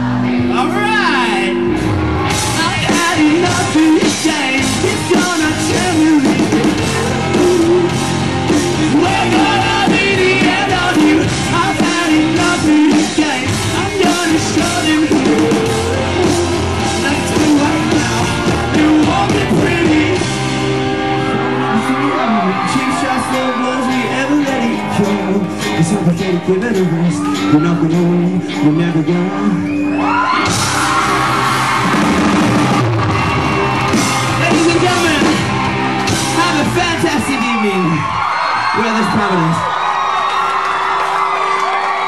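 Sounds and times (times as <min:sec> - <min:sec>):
electric guitars: 0:00.0 - 0:38.7
drums: 0:00.0 - 0:42.0
rock band playing live: 0:00.0 - 0:42.0
person singing: 0:02.5 - 0:20.5, 0:21.2 - 0:29.7.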